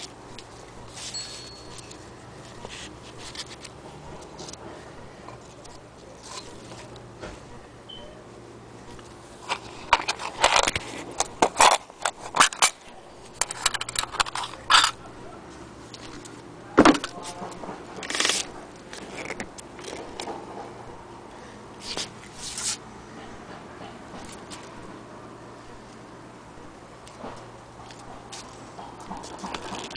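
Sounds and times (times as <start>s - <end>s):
paper rustling: 0.0s - 4.6s, 21.8s - 22.8s
clicks and scrapes: 9.4s - 15.0s, 17.0s - 20.4s.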